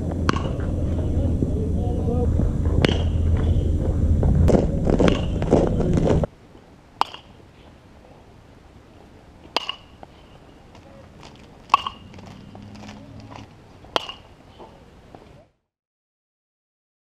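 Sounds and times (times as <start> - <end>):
metal bat hitting balls: 0.0 - 1.2, 2.6 - 3.8, 4.4 - 6.2, 7.0 - 7.4, 9.4 - 10.5, 11.2 - 14.8
loud background noise: 0.0 - 15.6.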